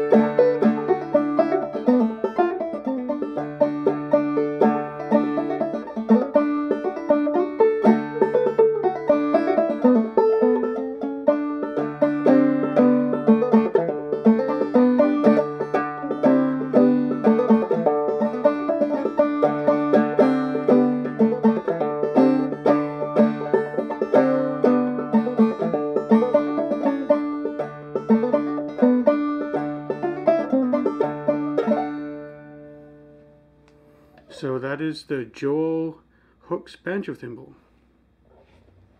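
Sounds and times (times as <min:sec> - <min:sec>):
banjo playing old-time tune: 0:00.0 - 0:33.4.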